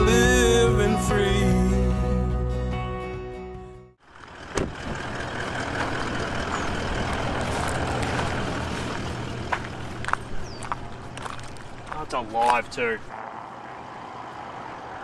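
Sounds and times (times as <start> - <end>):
low engine hum: 4.0 - 12.1
vehicle road noise: 4.0 - 15.0.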